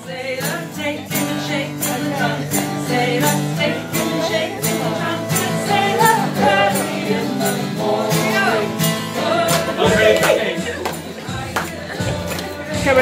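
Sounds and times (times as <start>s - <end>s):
person singing: 0.0s - 13.0s
steady beat: 9.7s - 13.0s.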